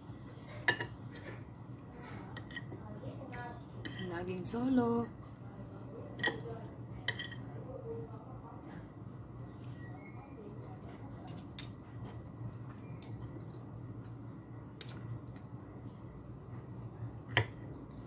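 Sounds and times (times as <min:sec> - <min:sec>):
low steady hum: 0:00.0 - 0:18.0
cutlery scraping ceramic plate: 0:03.8 - 0:04.1, 0:07.1 - 0:07.4.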